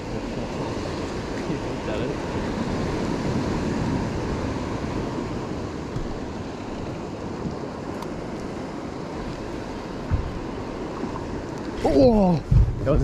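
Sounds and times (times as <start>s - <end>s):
sea washing against boat: 0.0s - 13.0s
wind noise on microphone: 2.2s - 13.0s.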